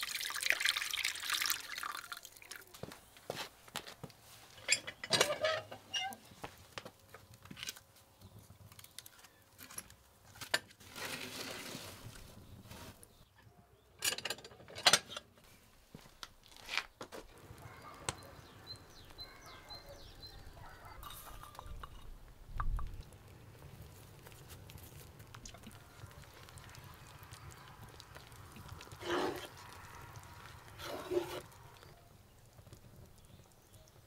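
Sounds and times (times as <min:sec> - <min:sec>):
birds chirping: 0:17.4 - 0:23.6
knocks and scrapes of wood: 0:30.8 - 0:31.4.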